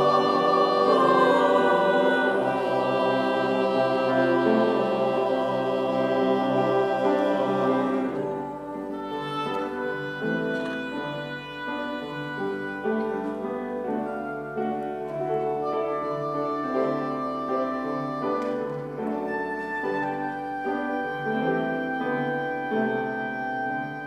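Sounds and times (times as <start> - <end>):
slow piano music: 0.0 - 24.0.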